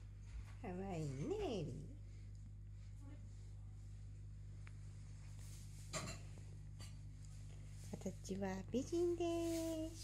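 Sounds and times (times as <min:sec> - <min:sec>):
steady low hum: 0:00.0 - 0:10.0
rustling of hands and clothing: 0:02.2 - 0:10.0.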